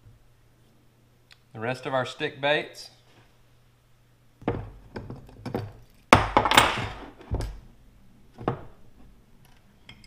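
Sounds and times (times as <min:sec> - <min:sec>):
metal mold knocks on wood: 0:04.4 - 0:07.6.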